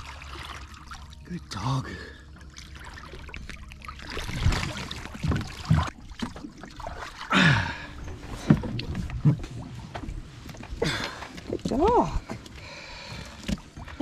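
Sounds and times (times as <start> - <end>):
water splashing and dripping: 0.0 - 14.0.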